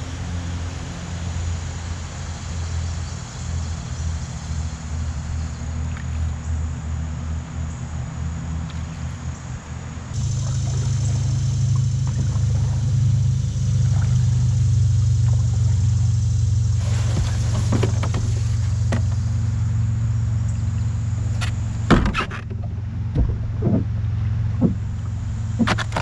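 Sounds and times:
small motor humming: 10.1s - 26.0s
sharp knocks and clatters: 21.4s - 23.9s.

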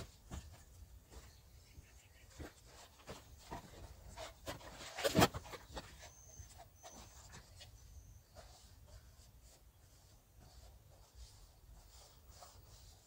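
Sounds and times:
faint high-pitched chirps: 5.6s - 10.3s.

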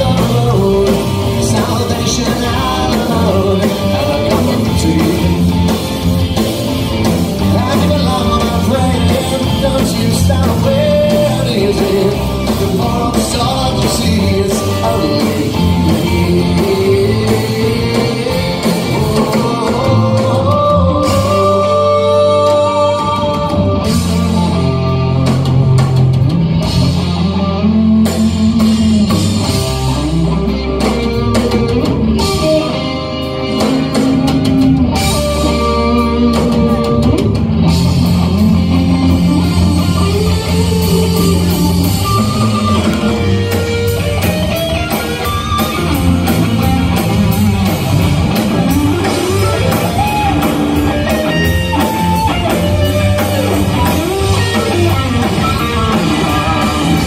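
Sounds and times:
live rock band playing: 0.0s - 57.0s
melodic guitar line sliding: 0.0s - 57.0s.

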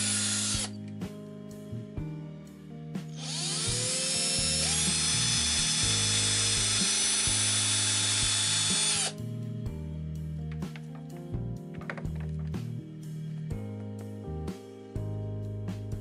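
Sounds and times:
drill boring into rubber: 0.0s - 0.8s, 3.2s - 9.2s.

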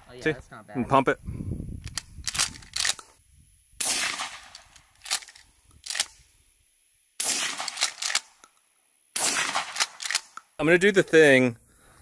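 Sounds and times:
muffled shotgun blast: 3.8s - 4.6s, 7.2s - 8.0s, 9.2s - 10.0s.

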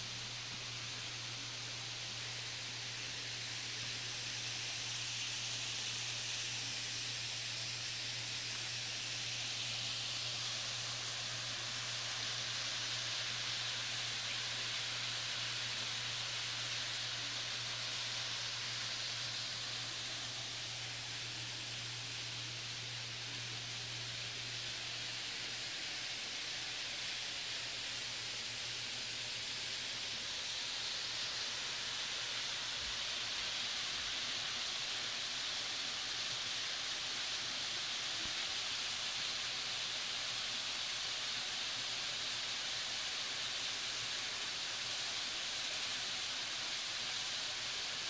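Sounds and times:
waterfall and creek rushing: 6.6s - 48.0s.

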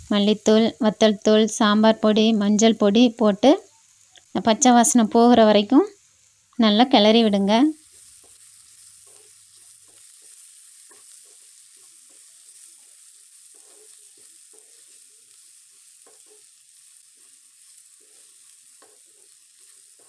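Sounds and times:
faint frying sizzle: 0.0s - 20.0s
wooden spatula scraping a pan: 7.8s - 20.0s.

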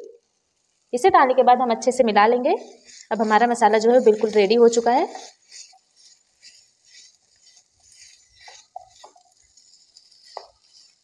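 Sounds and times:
spatula scraping a frying pan: 2.6s - 11.0s
spatula tapping a pan: 4.2s - 11.0s.

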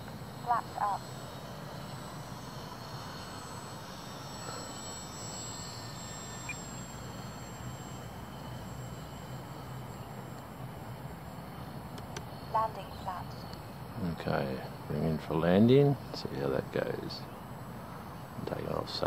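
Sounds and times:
model plane motor whining: 0.0s - 12.8s.

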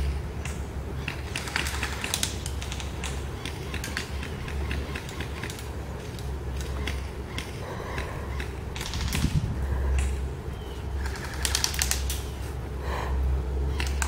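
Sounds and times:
paintball guns firing: 0.1s - 9.4s, 11.0s - 12.3s.

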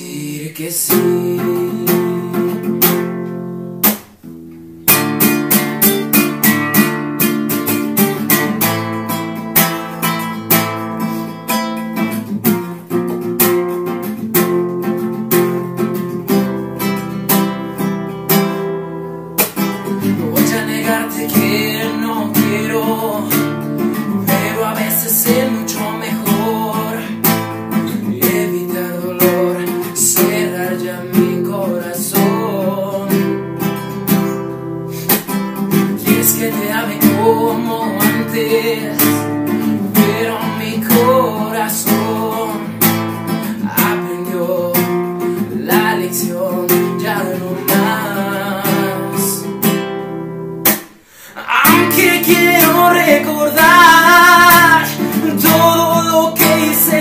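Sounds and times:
man singing: 0.0s - 3.2s, 19.8s - 49.8s, 51.2s - 57.0s
acoustic guitar strummed: 0.0s - 57.0s.

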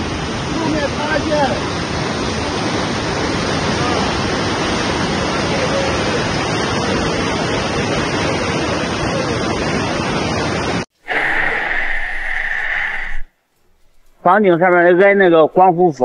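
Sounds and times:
water rushing: 0.0s - 13.3s
steady high hum: 11.0s - 14.2s.

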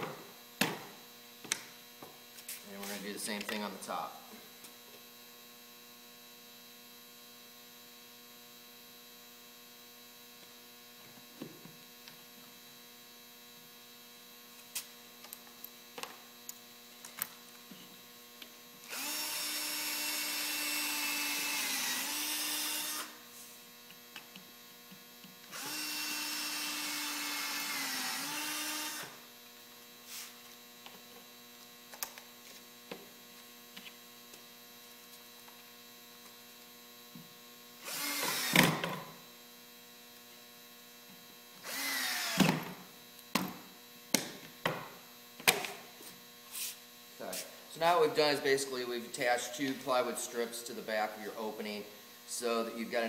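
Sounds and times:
steady mains hum: 0.0s - 53.0s
cordless drill driving screws: 18.9s - 23.2s, 25.5s - 29.2s, 37.8s - 38.9s, 41.6s - 42.6s.

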